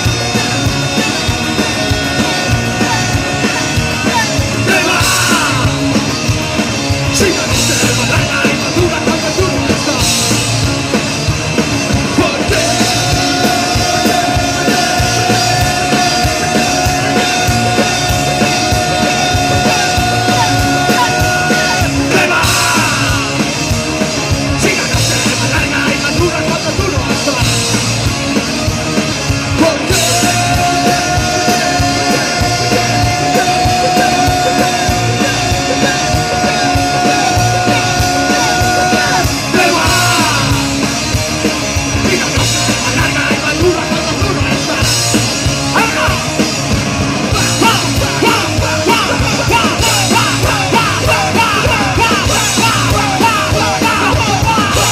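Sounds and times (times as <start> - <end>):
punk band playing: 0.0 - 54.9
singer shouting into microphone: 2.2 - 5.9, 12.2 - 23.4, 29.5 - 40.8, 42.0 - 46.4, 47.3 - 54.9.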